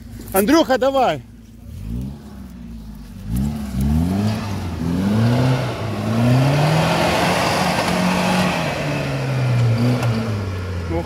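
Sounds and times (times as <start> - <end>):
suv engine revving hard: 3.2 - 10.6.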